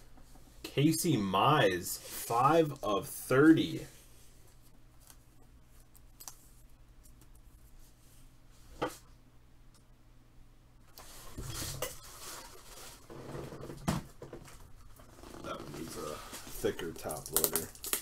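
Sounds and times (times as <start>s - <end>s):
plastic sliding rustle: 11.0s - 13.2s.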